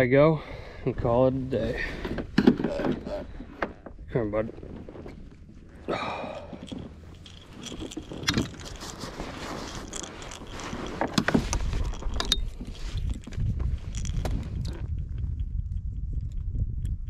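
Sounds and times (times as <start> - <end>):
wind rumble on microphone: 0.0 - 17.0
fishing tackle clicking and rattling: 6.0 - 14.8.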